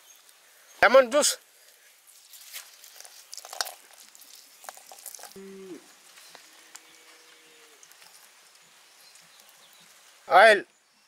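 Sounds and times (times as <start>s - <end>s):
wet squishing of lemon: 2.1s - 5.4s, 7.7s - 10.0s.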